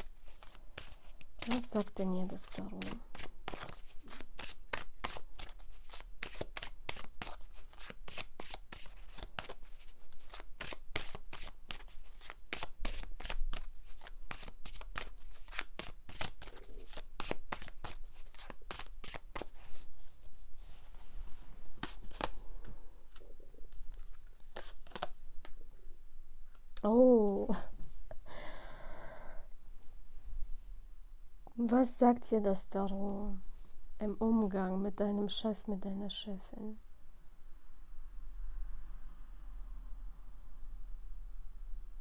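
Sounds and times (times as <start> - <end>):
cards being shuffled: 0.0 - 25.6.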